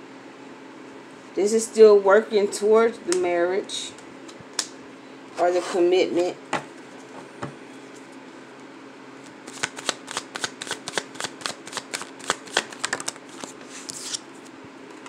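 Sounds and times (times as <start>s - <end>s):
cards being shuffled: 9.2s - 14.2s.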